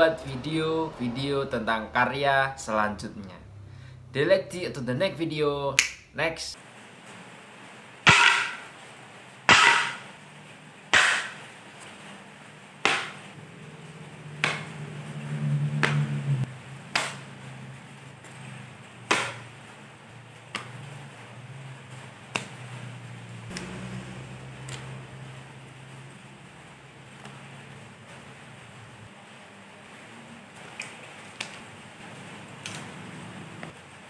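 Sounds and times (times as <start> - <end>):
low background hum: 0.0 - 34.0
plywood sheets clacking on tiles: 8.1 - 8.7, 9.5 - 10.1, 10.9 - 12.1, 12.9 - 13.4.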